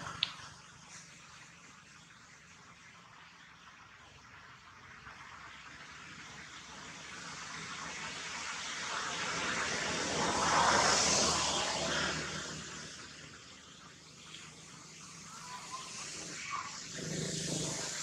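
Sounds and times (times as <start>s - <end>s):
vehicle passing by: 6.0s - 18.0s.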